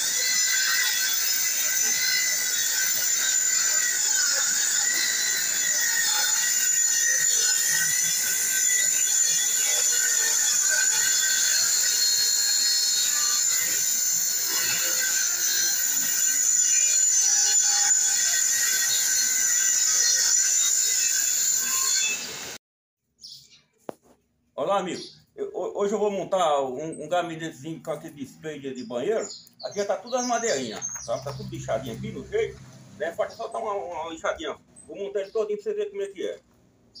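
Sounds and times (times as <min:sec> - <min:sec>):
table saw ripping wood: 0:00.0 - 0:22.3.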